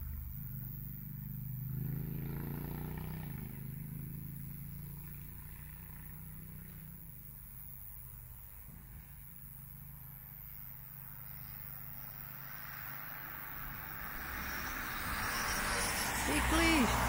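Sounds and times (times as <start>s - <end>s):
vehicle driving past: 0.0s - 6.8s, 11.1s - 17.0s.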